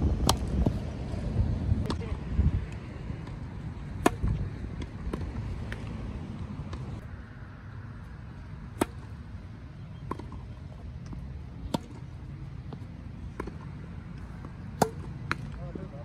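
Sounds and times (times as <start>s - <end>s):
low outdoor rumble: 0.0s - 16.0s
tennis ball hit by racket: 0.2s - 0.8s, 3.2s - 5.9s, 8.7s - 9.2s, 11.1s - 12.1s, 12.7s - 13.8s, 14.4s - 15.6s.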